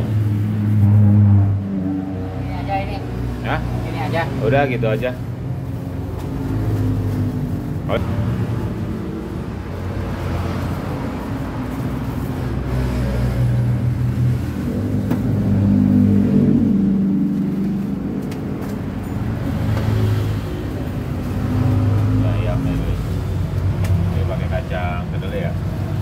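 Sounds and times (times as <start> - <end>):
vehicle accelerating: 0.0 - 26.0
vehicles passing: 0.0 - 26.0.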